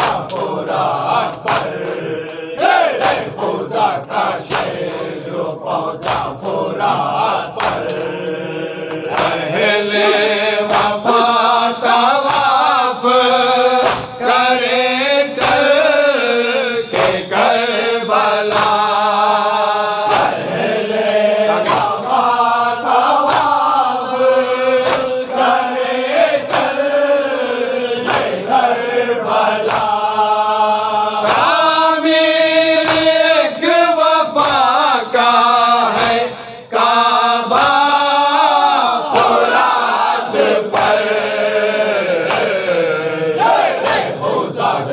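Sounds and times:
palms slapping chests: 0.0 - 11.4, 13.7 - 14.3, 20.0 - 22.3, 27.9 - 28.6, 29.6 - 30.1
men chanting in unison: 0.0 - 44.9.

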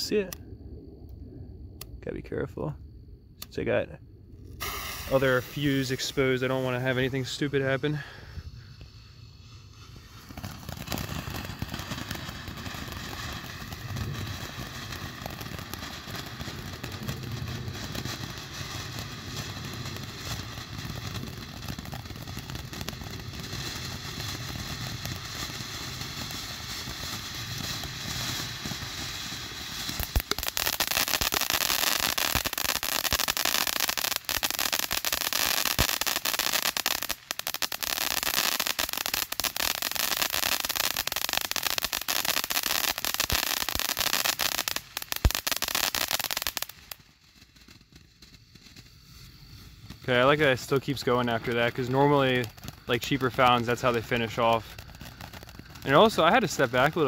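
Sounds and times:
firework fountain hissing: 4.4 - 57.0
sharp pops: 4.5 - 7.2, 29.9 - 37.5
dense crackling spray: 4.5 - 57.0.

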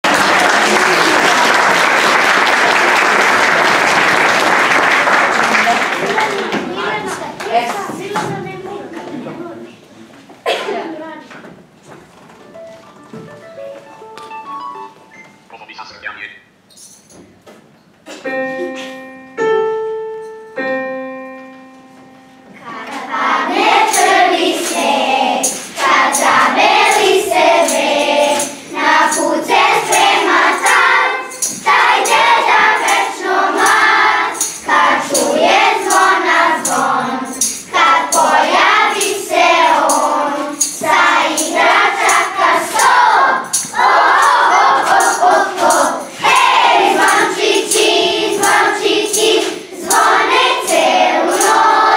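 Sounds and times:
held instrument notes: 12.4 - 15.7, 18.3 - 51.9
choir singing: 22.6 - 51.9.

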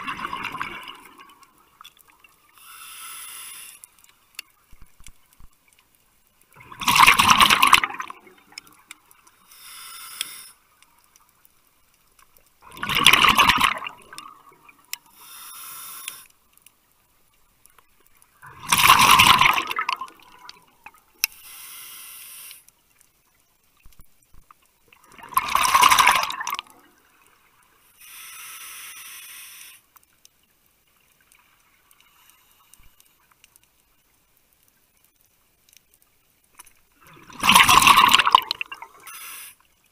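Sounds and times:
exhaled bubbles bursting: 0.0 - 1.4, 6.6 - 8.6, 12.6 - 14.6, 18.4 - 20.6, 25.0 - 26.8, 37.0 - 39.0
regulator inhaling hiss: 2.5 - 4.0, 9.3 - 10.8, 15.0 - 16.4, 21.2 - 22.7, 27.8 - 29.9, 39.0 - 39.7.

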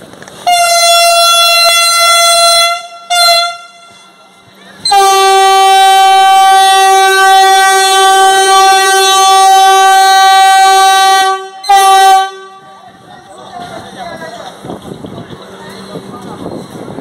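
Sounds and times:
train horn blasts: 0.4 - 13.0.

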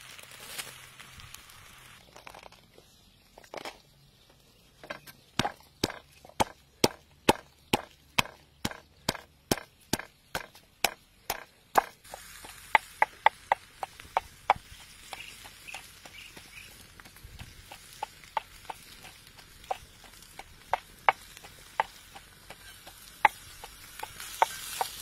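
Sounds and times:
pestle pounding in mortar: 5.4 - 25.0.

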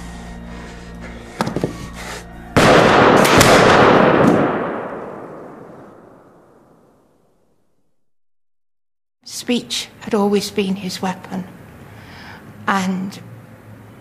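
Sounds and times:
pistol gunshot blast: 2.6 - 6.2.

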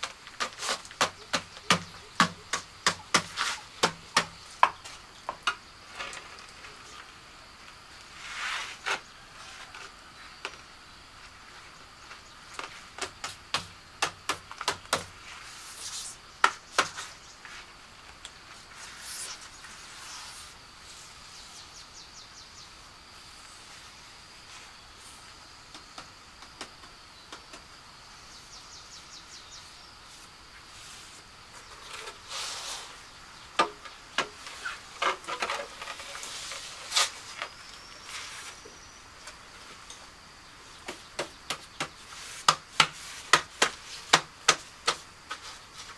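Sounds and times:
knocks and clicks of hand tools: 0.0 - 5.6, 12.6 - 15.1
high insect trill: 0.0 - 45.9.

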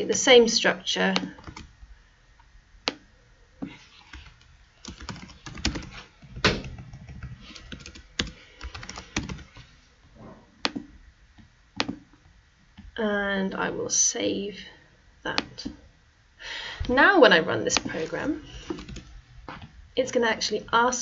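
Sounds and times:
typing on computer keyboard: 1.2 - 1.7, 4.1 - 6.0, 6.6 - 9.5, 18.7 - 19.1.

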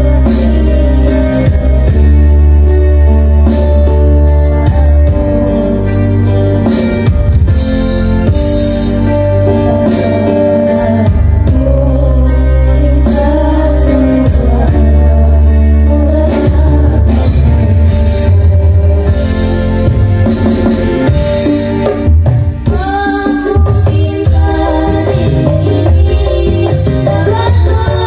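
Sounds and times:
boys singing into microphones: 0.0 - 2.7, 9.8 - 19.6, 22.7 - 28.0
amplified backing track with bass: 0.0 - 28.0.

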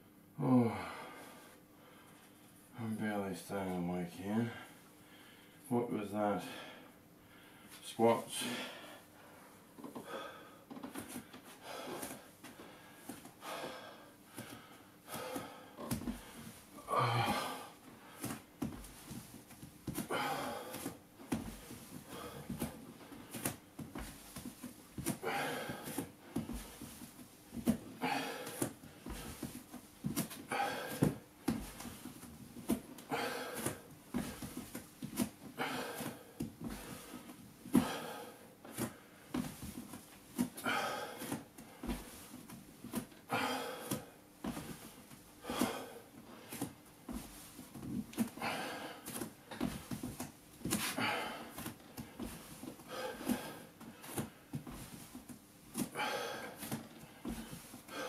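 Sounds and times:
man breathing hard: 0.4 - 2.5, 4.4 - 5.7, 6.4 - 19.2, 19.9 - 24.2, 25.0 - 27.1, 27.8 - 29.6, 30.4 - 32.0, 33.0 - 34.6, 35.4 - 39.4, 40.5 - 42.3, 43.2 - 47.5, 48.2 - 50.0, 50.8 - 55.0, 55.8 - 58.0.

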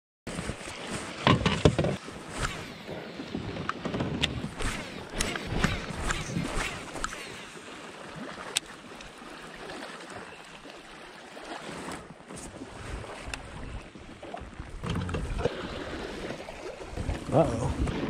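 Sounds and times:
small waves lapping against hull: 0.3 - 18.0
wind on microphone: 1.4 - 7.4, 16.9 - 18.0.

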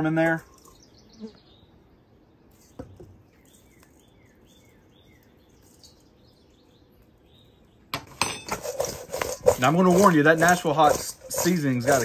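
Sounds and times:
bird chirping: 0.0 - 8.2.

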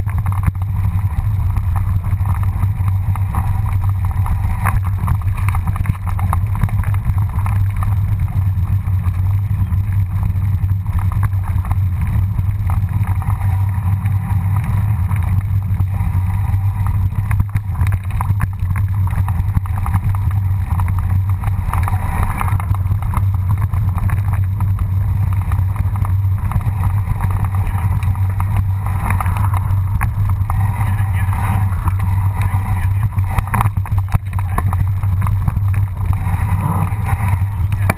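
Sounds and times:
bike clattering over stones: 0.0 - 37.9
wind and vibration rumble: 0.0 - 37.9.

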